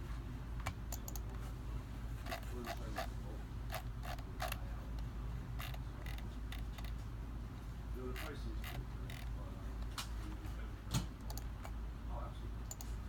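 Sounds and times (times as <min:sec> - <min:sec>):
steady low hum: 0:00.0 - 0:13.0
short clicks and creaks: 0:08.1 - 0:09.3.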